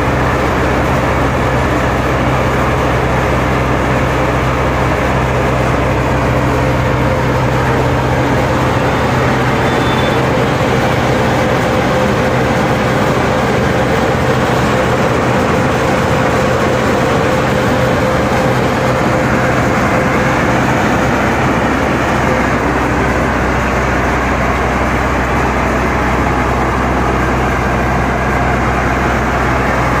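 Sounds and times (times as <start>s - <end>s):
machine low hum: 0.0s - 30.0s.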